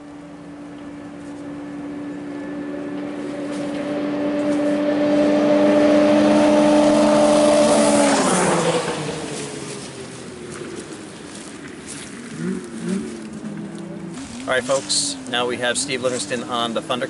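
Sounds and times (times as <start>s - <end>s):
snowmobile engine at full throttle: 1.8s - 10.7s.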